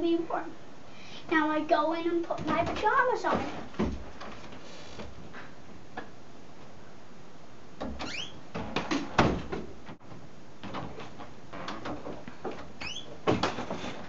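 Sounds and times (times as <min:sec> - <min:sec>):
steady hiss: 0:04.2 - 0:05.9
door hinge squeak: 0:07.8 - 0:08.4, 0:12.8 - 0:13.2
door closing and latching: 0:07.8 - 0:14.0.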